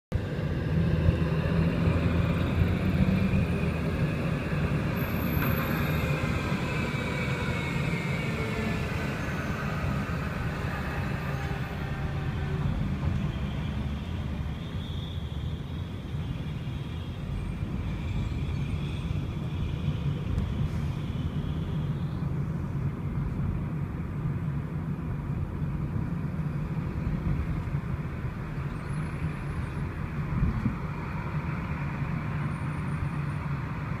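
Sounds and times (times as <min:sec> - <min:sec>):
traffic engine rumble: 0:00.1 - 0:34.0
high whine sliding down: 0:00.2 - 0:13.9.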